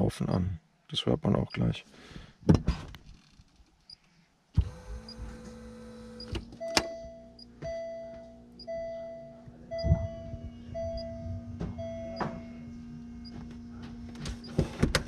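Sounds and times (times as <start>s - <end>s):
electric pumps humming: 4.6s - 15.0s
electronic beeping: 6.2s - 13.4s.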